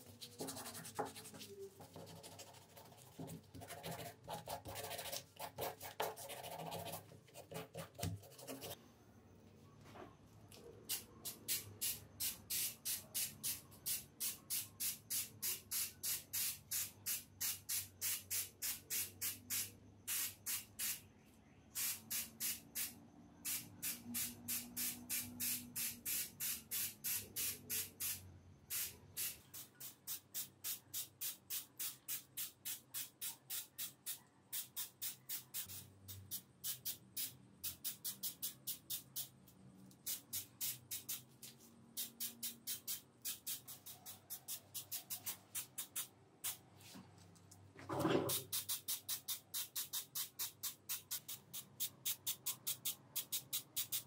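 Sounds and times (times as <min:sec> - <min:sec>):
sandpaper rubbing on metal: 0:00.0 - 0:07.0
spray paint can hissing: 0:10.9 - 0:21.0, 0:21.8 - 0:46.6, 0:48.3 - 0:54.0.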